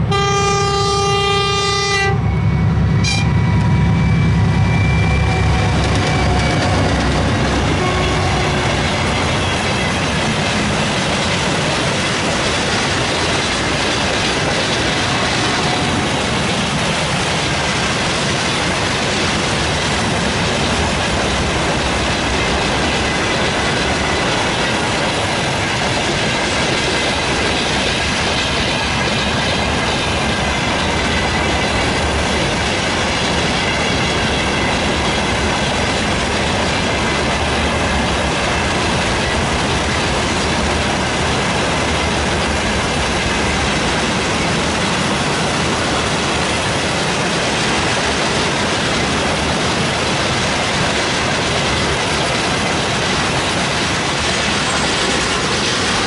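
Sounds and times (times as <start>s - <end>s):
high squeal of wheel on rail: 0.1s - 10.3s
train wheels clattering over rail joints: 5.5s - 56.0s.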